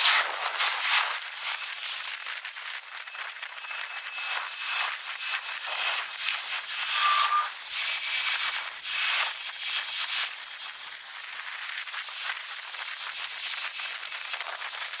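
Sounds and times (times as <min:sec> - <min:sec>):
brief tone: 0:02.8 - 0:07.6.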